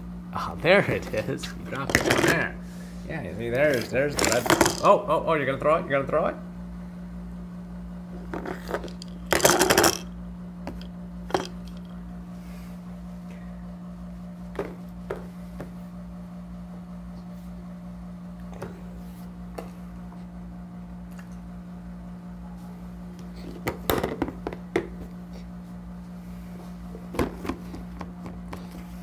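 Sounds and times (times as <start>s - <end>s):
plastic rattle clattering on a tray: 3.7s - 4.8s, 8.4s - 10.1s.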